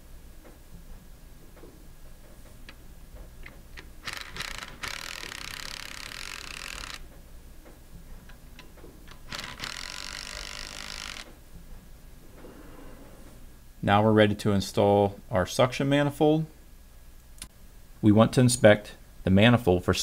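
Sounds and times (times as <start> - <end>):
ratchet wrench clicking: 3.8 - 7.0, 9.1 - 11.3.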